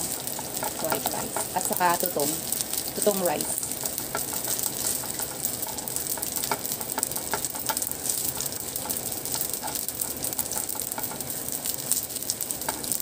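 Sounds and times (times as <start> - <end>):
rice sizzling in oil: 0.0 - 13.0
spoon tapping and scraping pan: 0.1 - 2.3, 3.7 - 11.3.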